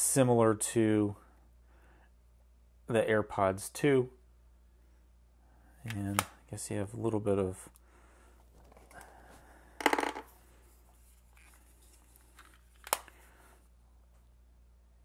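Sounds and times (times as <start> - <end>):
plastic case handling: 11.0 - 13.2.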